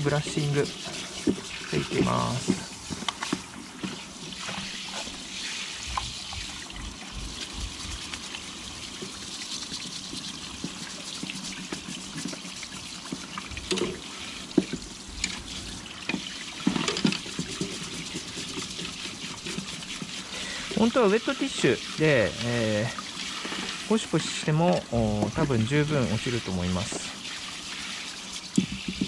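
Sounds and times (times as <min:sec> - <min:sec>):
brush scrubbing: 0:00.0 - 0:29.0
water running into a sink: 0:00.0 - 0:29.0.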